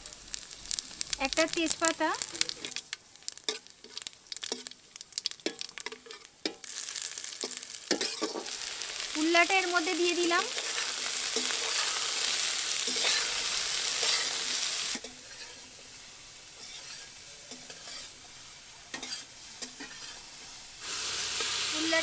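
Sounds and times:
vegetables sizzling in hot oil: 0:00.0 - 0:22.0
metal spatula scraping a pan: 0:07.3 - 0:09.1, 0:10.5 - 0:21.7.

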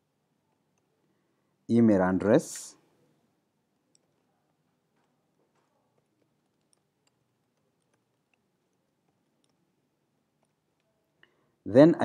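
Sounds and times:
faint keyboard typing: 0:00.4 - 0:01.2, 0:03.7 - 0:11.6.

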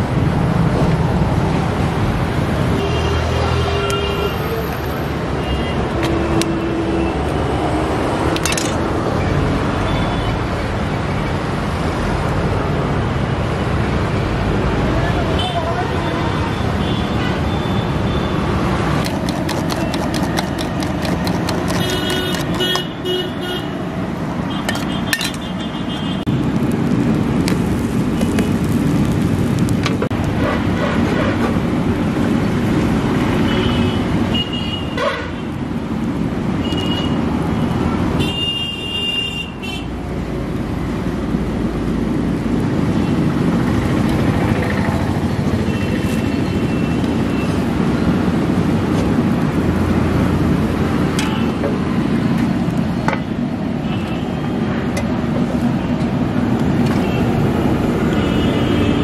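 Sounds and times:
roadside traffic: 0:00.0 - 0:59.0
vehicle horns tooting: 0:21.5 - 0:23.8.

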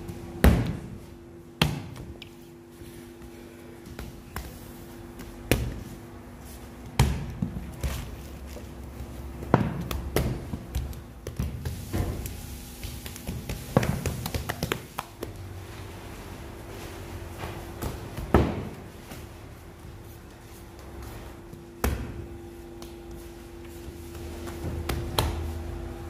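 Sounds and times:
faint machine hum: 0:00.0 - 0:26.0
dough thumping on work surface: 0:24.3 - 0:25.6.

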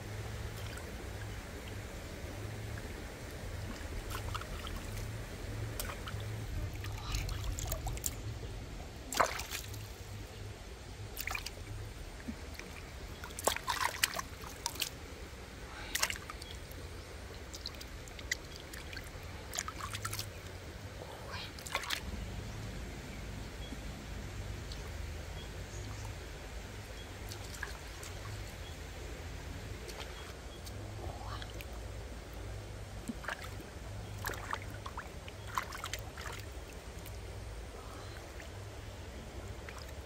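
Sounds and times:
hands splashing in stream water: 0:03.6 - 0:08.2, 0:09.1 - 0:10.0, 0:11.2 - 0:11.6, 0:12.3 - 0:15.0, 0:15.8 - 0:16.6, 0:17.5 - 0:20.5, 0:21.6 - 0:22.0, 0:27.2 - 0:28.6, 0:29.8 - 0:30.8, 0:33.0 - 0:37.3.

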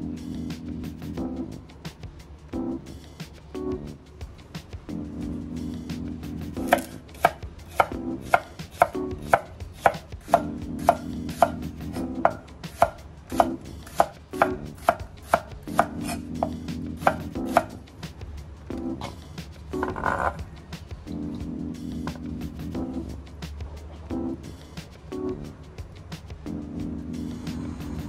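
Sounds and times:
knife chopping on cutting board: 0:06.6 - 0:17.8.

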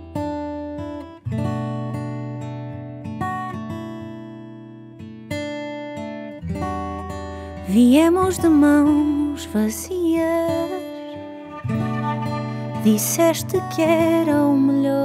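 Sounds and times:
acoustic guitar chords ringing: 0:09.1 - 0:14.7.

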